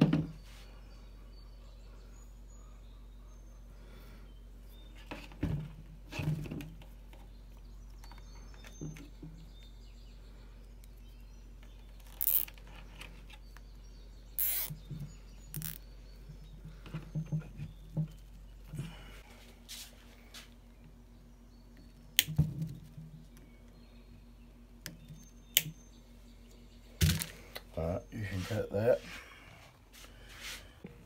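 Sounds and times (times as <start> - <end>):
low steady hum: 0.0 - 31.0
zip ties pulled tight: 12.1 - 12.5, 14.4 - 14.7
zip tie zipping rasps: 14.4 - 14.7.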